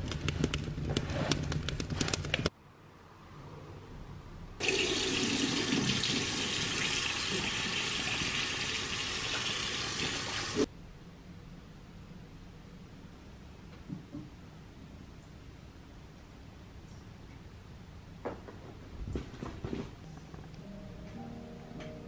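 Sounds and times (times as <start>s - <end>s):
tap water running into basin: 4.6s - 10.7s.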